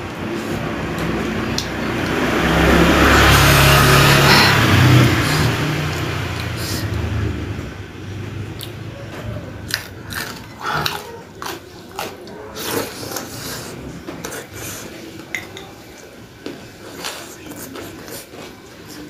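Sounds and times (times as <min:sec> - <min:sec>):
person chewing crunchily: 0:08.5 - 0:08.9, 0:09.6 - 0:14.9, 0:16.8 - 0:19.0.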